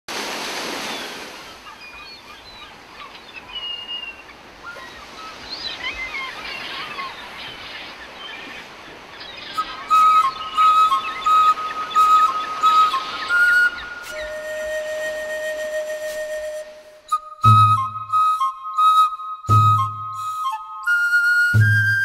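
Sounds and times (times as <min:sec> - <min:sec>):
birds chirping: 0:00.8 - 0:15.4
flute music with rhythmic bursts: 0:09.5 - 0:22.0.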